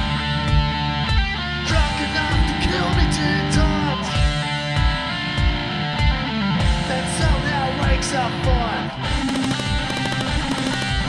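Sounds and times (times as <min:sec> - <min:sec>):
kick drum beat: 0:00.0 - 0:07.4
sliding guitar notes: 0:00.0 - 0:11.0.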